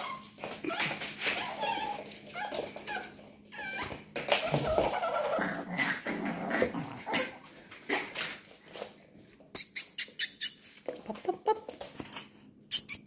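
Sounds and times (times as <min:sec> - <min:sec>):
high-pitched puppy yelps: 0:00.0 - 0:05.4
puppies play-fighting: 0:00.0 - 0:13.0.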